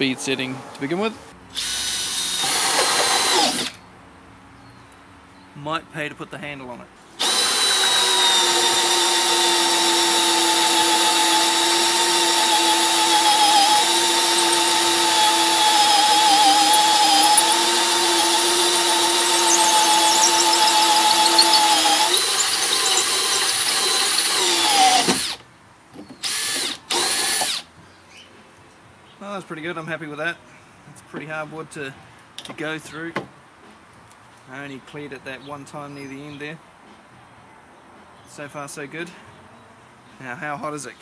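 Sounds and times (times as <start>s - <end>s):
drill whining through wood: 1.6s - 3.8s, 7.2s - 25.4s, 26.2s - 27.7s.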